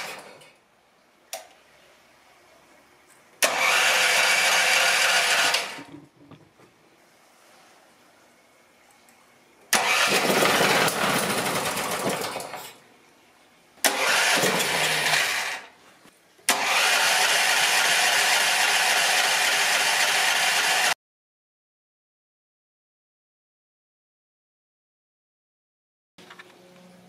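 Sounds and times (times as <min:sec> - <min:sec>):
small engine starting and dying: 0:03.4 - 0:05.9, 0:09.7 - 0:12.7, 0:13.8 - 0:15.7, 0:16.5 - 0:21.0.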